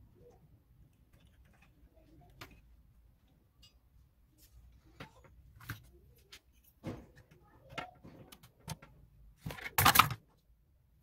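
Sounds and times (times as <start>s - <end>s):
plastic parts clicking and knocking: 0.3s - 2.9s, 5.0s - 10.4s
plastic clatter: 6.8s - 10.2s.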